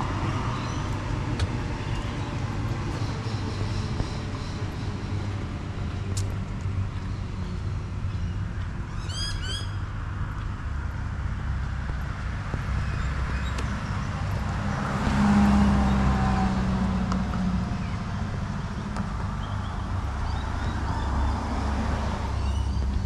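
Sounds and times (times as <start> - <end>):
low rumble of cars: 0.0 - 23.0
vehicle passing close: 11.2 - 23.0.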